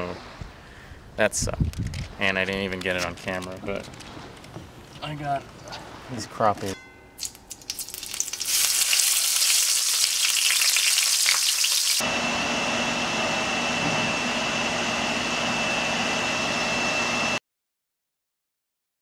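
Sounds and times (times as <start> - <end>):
fish sizzling in hot oil: 7.2 - 12.0.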